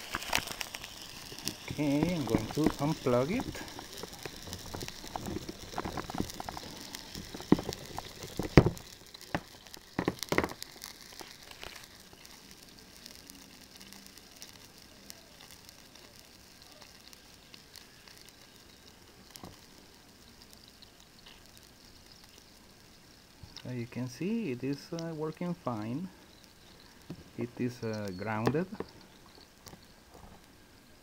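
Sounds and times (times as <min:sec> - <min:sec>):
small clicks: 0:00.0 - 0:23.7
faint steady hiss: 0:00.0 - 0:31.0.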